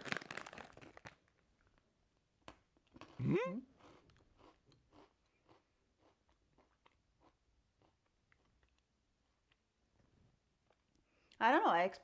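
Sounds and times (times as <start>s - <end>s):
crunchy chewing: 2.9s - 9.6s
person humming mm: 3.2s - 3.7s.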